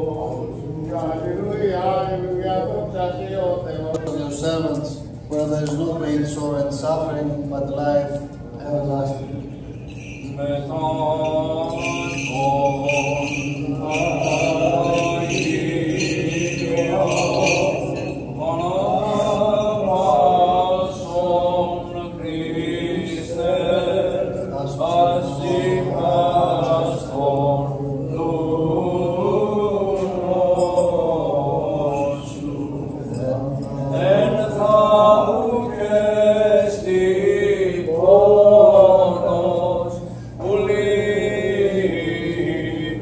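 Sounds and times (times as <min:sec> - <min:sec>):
chanted hymn singing: 0:00.0 - 0:43.0.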